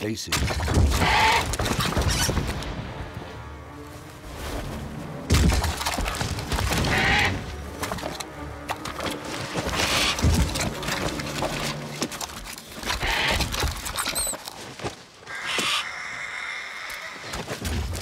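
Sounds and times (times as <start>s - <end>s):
wings flapping: 5.3s - 14.4s.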